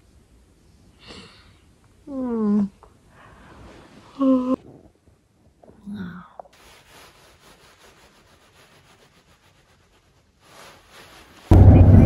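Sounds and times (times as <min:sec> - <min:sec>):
quiet hiss: 0:00.0 - 0:12.0
faint rustling and rubbing: 0:03.4 - 0:11.6.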